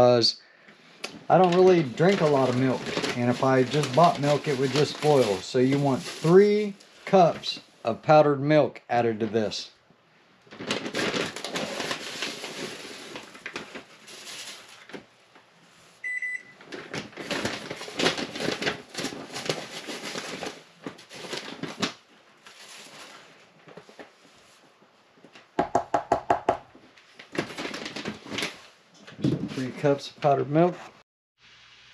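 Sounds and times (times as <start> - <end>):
plastic bag rustling: 1.2 - 7.6, 10.4 - 25.3, 27.0 - 30.0
short electronic beep: 16.0 - 16.5.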